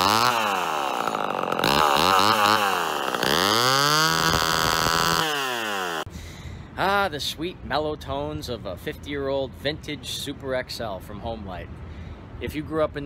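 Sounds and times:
chainsaw revving: 0:00.0 - 0:06.1.

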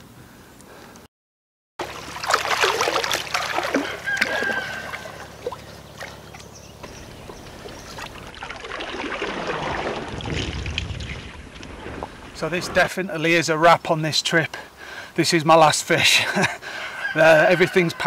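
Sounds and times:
water streaming off mesh: 0:01.8 - 0:13.0
lake water splashing: 0:01.8 - 0:13.4.

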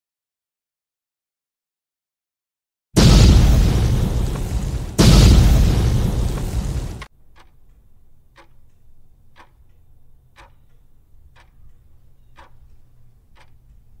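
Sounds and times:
clock ticking: 0:03.0 - 0:14.0.

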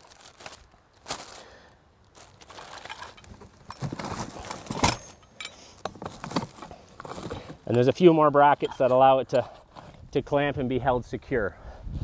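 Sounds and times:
plastic wrapping crinkling: 0:00.0 - 0:04.8.

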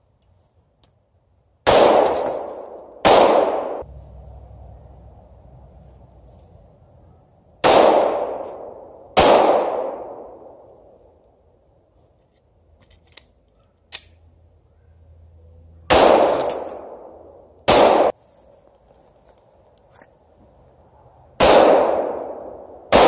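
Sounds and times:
pistol shots echoing: 0:01.6 - 0:03.8, 0:07.6 - 0:10.6, 0:15.9 - 0:18.1, 0:21.4 - 0:23.0.

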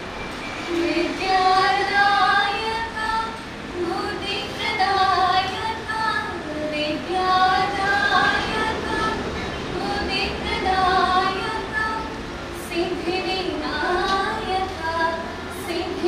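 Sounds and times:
women singing into a microphone: 0:00.6 - 0:16.0.

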